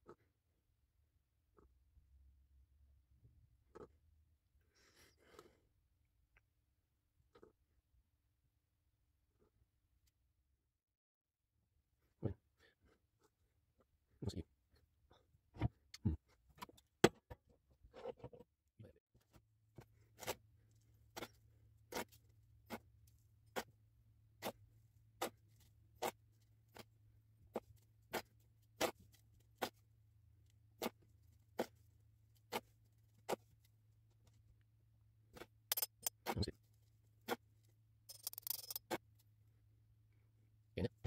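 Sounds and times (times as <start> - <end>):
metal spoon scraping in sand: 38.1 - 39.0.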